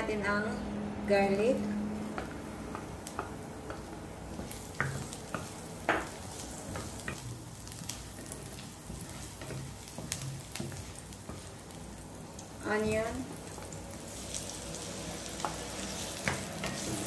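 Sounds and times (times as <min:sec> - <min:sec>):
garlic sizzling in hot oil: 0:02.1 - 0:17.0
wooden spatula tapping pan: 0:02.2 - 0:11.6.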